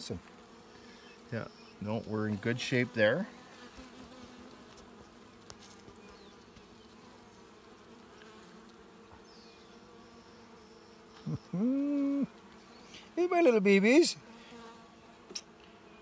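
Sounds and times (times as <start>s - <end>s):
honeybees humming: 0.0s - 16.0s
person making short voiced sound: 11.2s - 12.3s.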